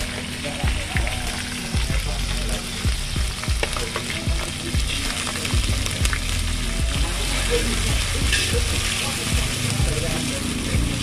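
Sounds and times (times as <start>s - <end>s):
chicken sizzling in hot oil: 0.0s - 11.0s.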